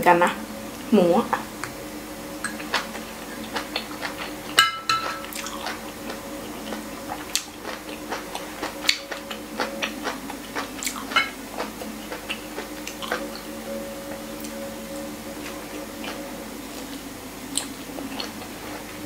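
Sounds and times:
low steady hum: 0.0s - 19.0s
cutlery clinking on ceramic plates: 2.4s - 5.8s.

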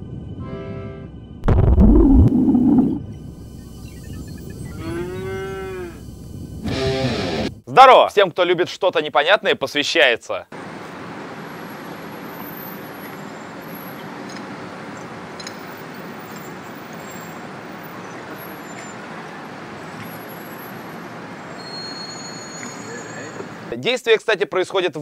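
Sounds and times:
street traffic rush: 10.5s - 23.8s.

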